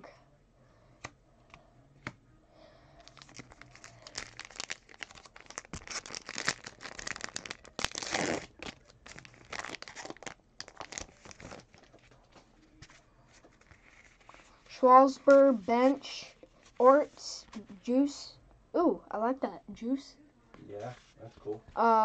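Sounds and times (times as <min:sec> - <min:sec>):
wrapper crinkling: 0:03.0 - 0:15.4.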